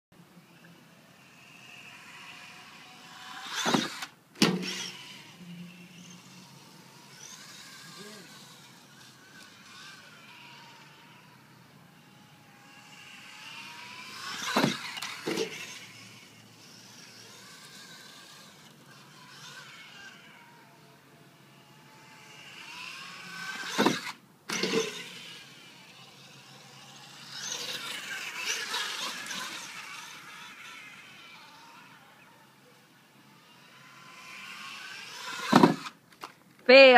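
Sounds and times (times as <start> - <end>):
electric motor whining: 0.6 - 36.0
toy truck landing smack: 3.6 - 4.9, 14.3 - 15.7, 23.7 - 25.0, 35.3 - 36.4.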